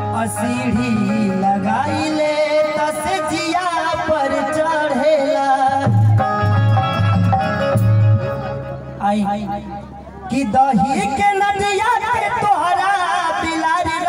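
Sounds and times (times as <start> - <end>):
man singing through microphone: 0.0 - 7.8, 9.0 - 14.0
keyboard accompaniment: 0.0 - 14.0
low even beat: 5.7 - 11.2.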